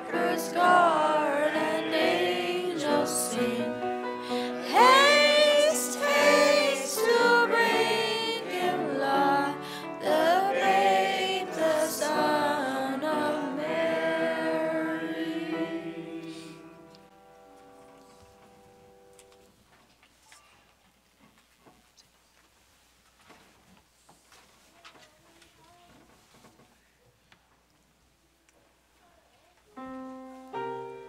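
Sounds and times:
choir singing: 0.0s - 17.1s.

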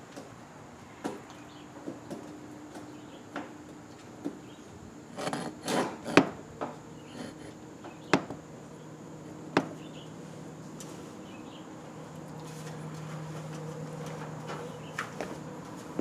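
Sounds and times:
cable scraping through wall hole: 5.1s - 6.4s, 7.1s - 7.6s
sharp knocks: 8.1s - 8.4s, 9.6s - 9.8s.

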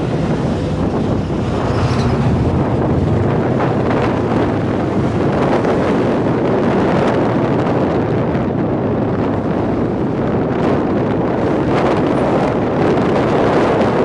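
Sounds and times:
motorcycle engine: 0.0s - 7.3s
wind buffeting microphone: 0.0s - 14.0s.

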